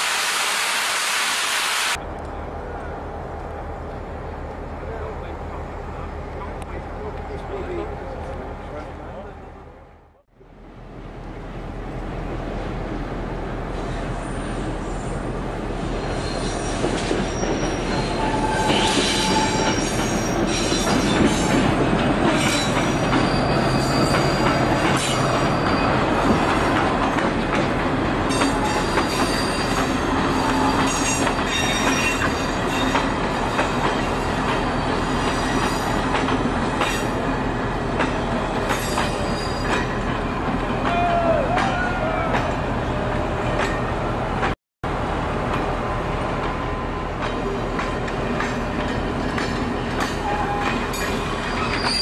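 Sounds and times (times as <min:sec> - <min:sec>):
train coaches rumbling: 0:01.9 - 0:52.0
train wheels squealing: 0:13.8 - 0:21.6, 0:22.3 - 0:26.7, 0:28.3 - 0:40.0, 0:49.5 - 0:52.0.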